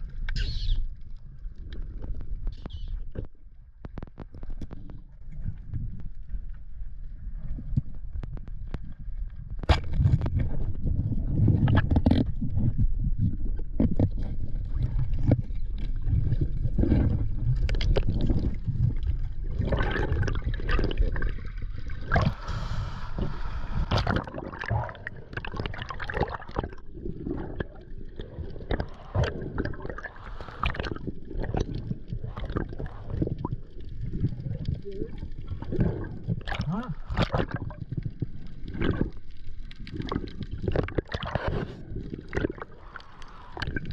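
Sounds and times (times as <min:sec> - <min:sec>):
water gurgling underwater: 0:07.0 - 0:43.9
water splashing: 0:14.2 - 0:43.9.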